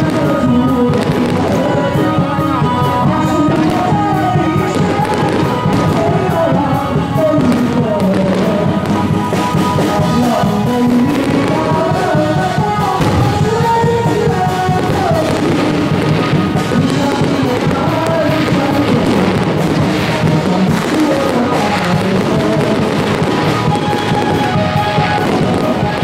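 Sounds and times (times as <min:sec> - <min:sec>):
fireworks popping: 0:00.0 - 0:26.0
melodic music: 0:00.0 - 0:26.0.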